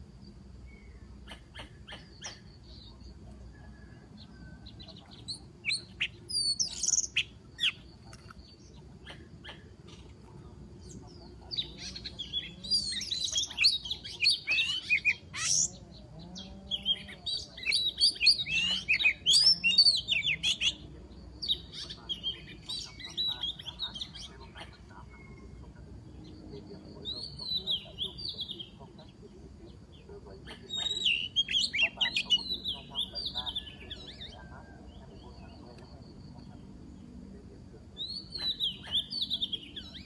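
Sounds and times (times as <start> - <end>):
bird singing: 0.0 - 40.0.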